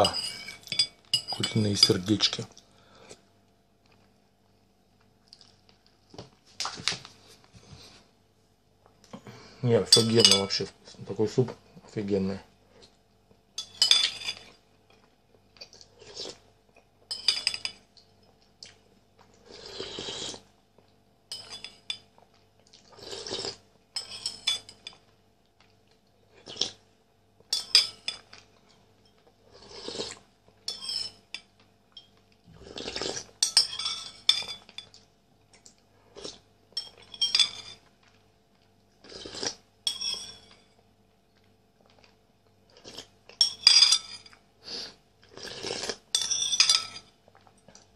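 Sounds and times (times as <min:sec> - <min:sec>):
metal spoon clinking on ceramic bowl: 0:00.0 - 0:02.0, 0:09.9 - 0:10.6, 0:13.6 - 0:14.4, 0:17.1 - 0:17.8, 0:21.3 - 0:22.1, 0:24.0 - 0:25.0, 0:27.5 - 0:28.3, 0:30.7 - 0:32.1, 0:33.4 - 0:35.0, 0:36.8 - 0:37.8, 0:39.9 - 0:40.7, 0:43.4 - 0:44.4, 0:46.1 - 0:47.1
wet slurping of soup: 0:19.5 - 0:20.5, 0:32.6 - 0:33.3, 0:44.6 - 0:46.0.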